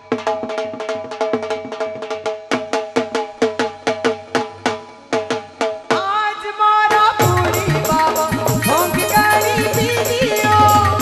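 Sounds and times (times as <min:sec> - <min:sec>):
hand drum strokes: 0:07.2 - 0:11.0.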